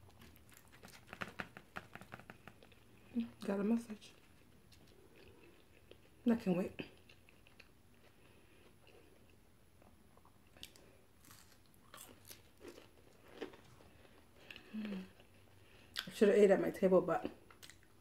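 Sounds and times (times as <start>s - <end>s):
person chewing: 0.0s - 3.2s, 4.2s - 6.2s, 6.8s - 16.1s, 17.4s - 18.0s
low room hum: 0.0s - 18.0s.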